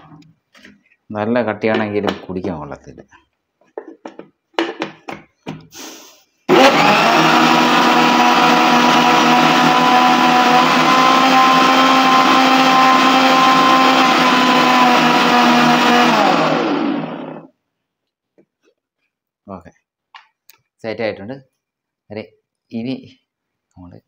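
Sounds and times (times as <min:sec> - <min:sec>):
mixer grinder motor running: 0:06.5 - 0:17.5.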